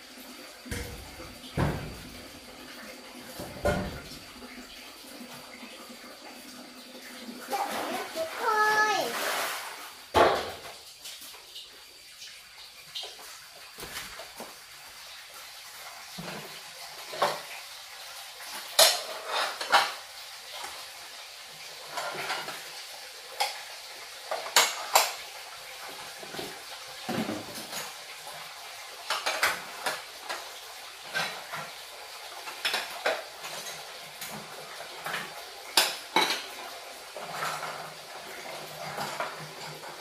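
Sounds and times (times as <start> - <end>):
dishes and utensils clinking: 18.7 - 20.0, 35.8 - 36.6.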